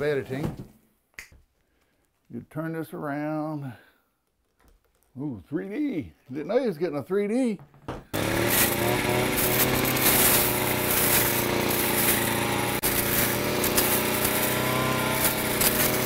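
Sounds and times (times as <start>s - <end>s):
brush cutter cutting brush: 8.2s - 16.0s.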